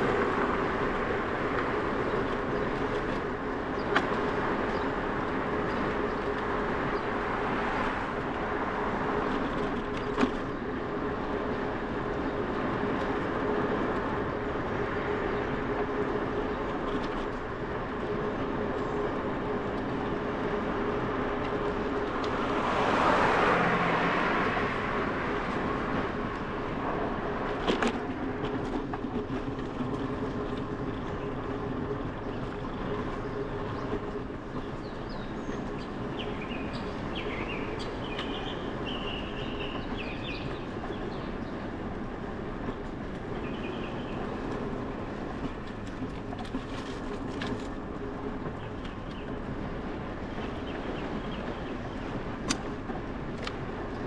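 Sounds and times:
bicycle tyre hum: 0.0s - 54.0s
birds chirping: 32.2s - 41.7s, 43.4s - 44.4s.

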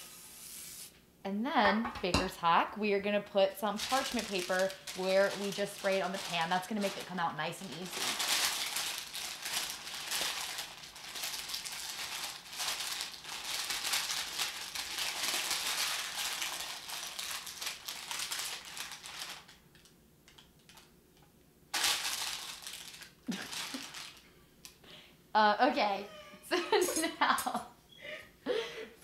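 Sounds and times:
parchment paper crinkling: 3.6s - 20.9s, 21.7s - 24.2s.

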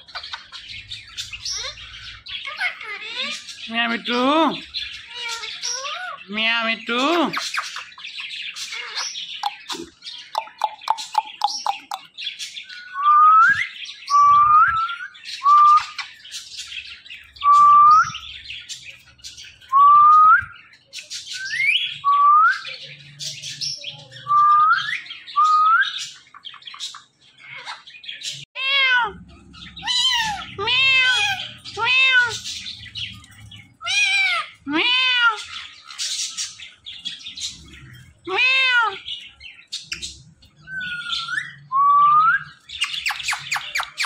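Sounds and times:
parakeets chattering clicks: 7.4s - 12.5s
parakeet harsh squawks: 29.8s - 32.5s, 33.8s - 36.0s.

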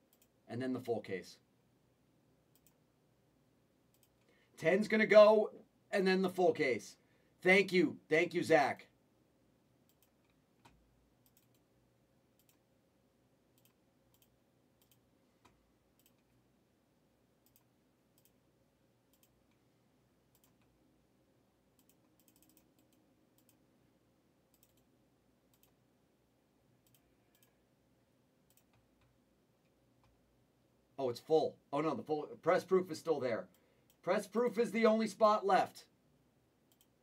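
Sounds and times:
mouse clicks: 2.5s - 2.8s, 12.4s - 12.6s, 26.8s - 27.6s, 36.7s - 37.0s
computer keyboard typing: 13.6s - 15.0s, 21.8s - 23.6s, 24.5s - 24.9s, 25.5s - 25.8s.

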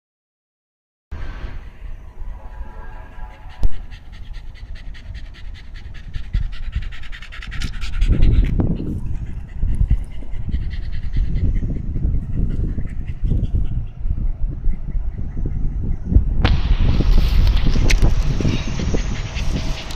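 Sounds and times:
low rumbling noise: 1.1s - 19.9s
dog panting: 3.3s - 14.2s, 17.4s - 19.9s.

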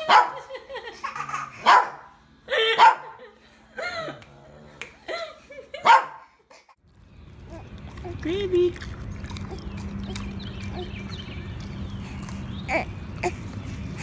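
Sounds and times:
small dog barking: 0.1s - 0.4s, 1.6s - 2.1s, 2.8s - 3.2s, 5.8s - 6.3s.

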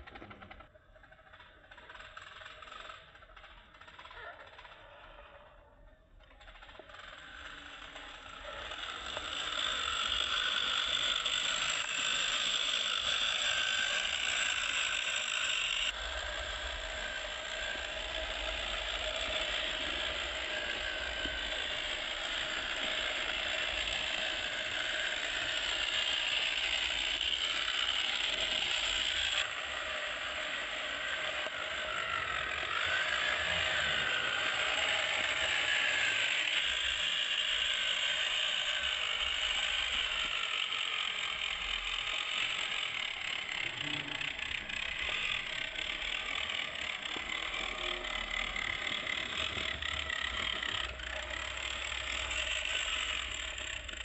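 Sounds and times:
toy car electric motor whirring: 0.0s - 54.0s.

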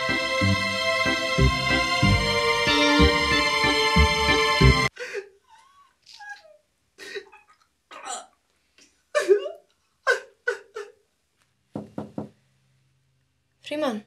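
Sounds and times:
knocks on a wooden door: 11.8s - 12.3s.

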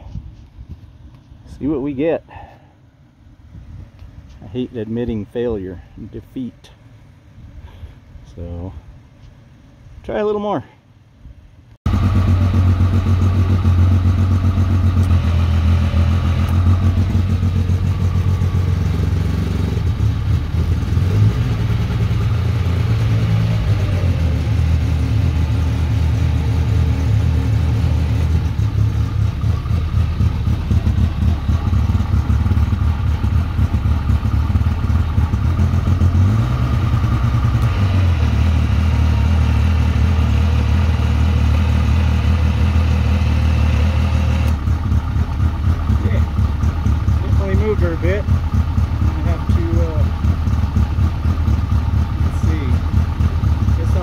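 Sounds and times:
engine running: 11.2s - 54.0s.

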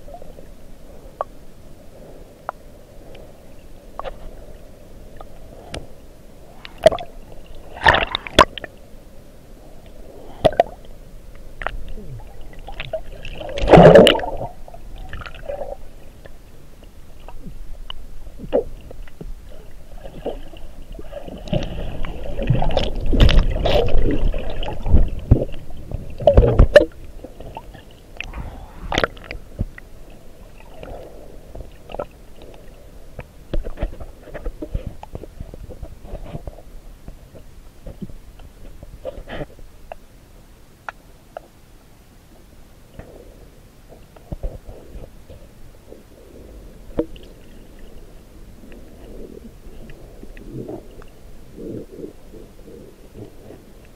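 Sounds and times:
underwater rumbling and gurgling: 0.0s - 40.1s, 43.0s - 53.9s.

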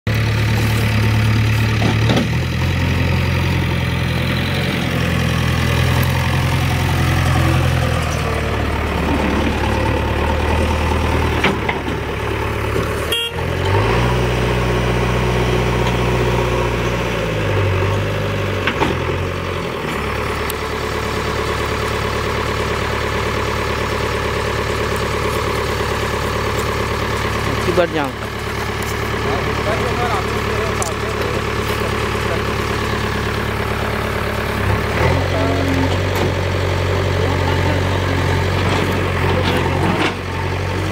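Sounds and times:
diesel engine revving: 0.1s - 40.9s.

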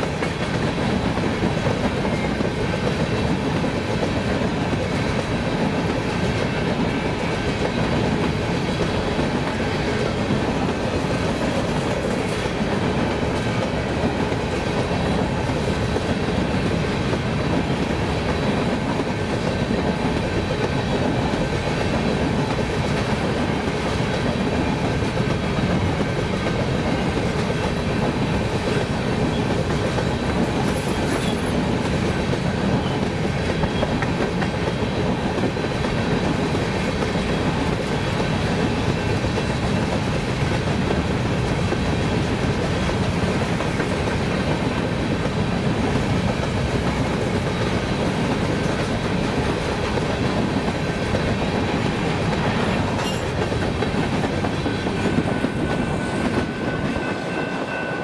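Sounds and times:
freight train wheels clattering: 0.0s - 58.0s
crossing bell ringing: 52.9s - 53.5s, 54.9s - 58.0s.

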